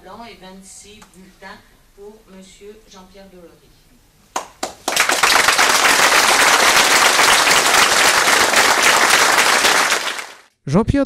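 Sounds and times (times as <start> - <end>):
crowd applauding: 4.4 - 10.5.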